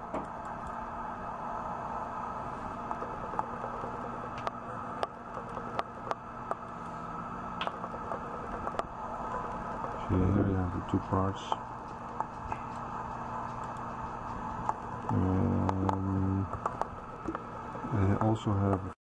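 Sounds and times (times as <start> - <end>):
steady background hum: 0.0 - 19.0
computer mouse clicking: 2.9 - 6.7, 11.9 - 17.4.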